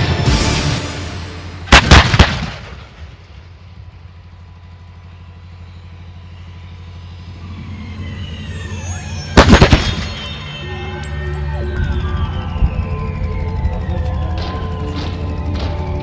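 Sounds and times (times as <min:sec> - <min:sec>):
low engine rumble: 0:00.0 - 0:16.0
howitzer gun blasts: 0:01.6 - 0:03.4, 0:09.4 - 0:10.2.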